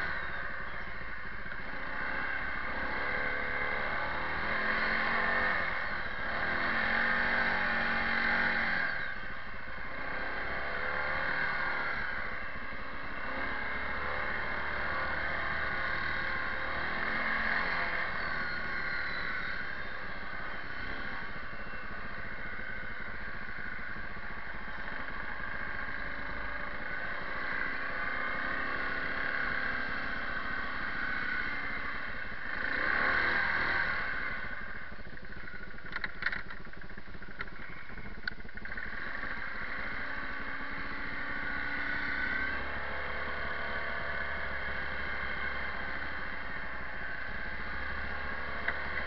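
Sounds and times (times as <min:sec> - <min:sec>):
atv engine running: 0:00.0 - 0:49.0
sharp clicks: 0:35.1 - 0:38.9.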